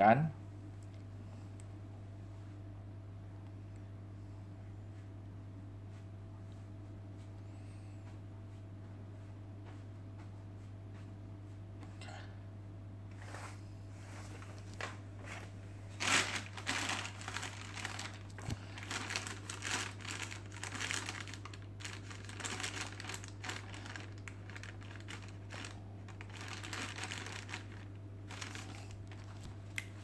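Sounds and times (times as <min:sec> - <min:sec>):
plastic bag crinkling: 0:14.4 - 0:30.0.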